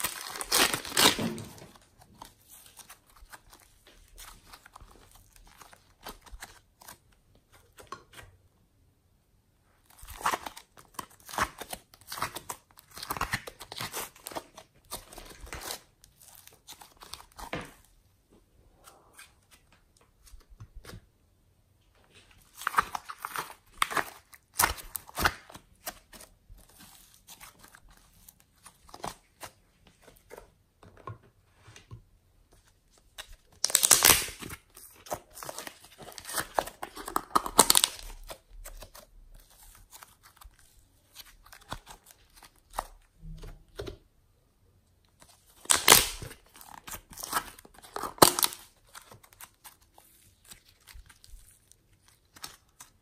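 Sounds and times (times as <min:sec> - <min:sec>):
slime crackling and popping: 0:33.5 - 0:38.9, 0:45.6 - 0:49.8.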